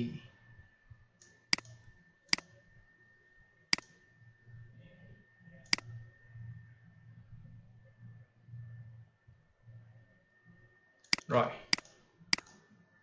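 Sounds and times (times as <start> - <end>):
computer mouse clicks: 1.2 - 2.6, 3.7 - 4.0, 5.6 - 6.0, 11.0 - 12.8.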